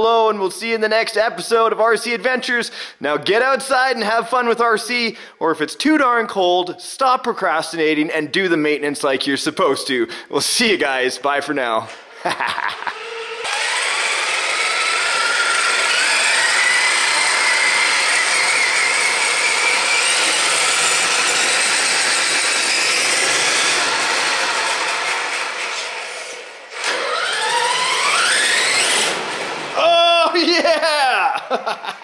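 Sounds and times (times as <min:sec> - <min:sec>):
electric motor whining: 0:12.9 - 0:25.6, 0:26.7 - 0:29.7.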